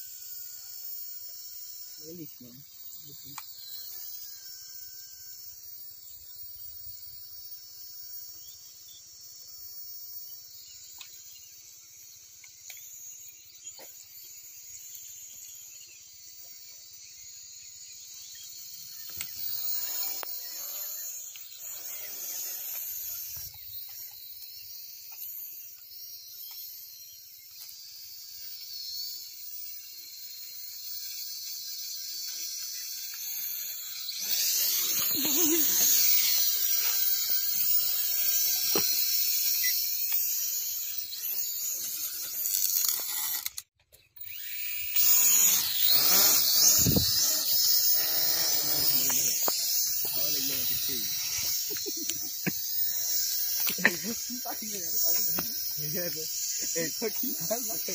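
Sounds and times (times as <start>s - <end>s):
drone propellers whining: 17.8s - 57.9s.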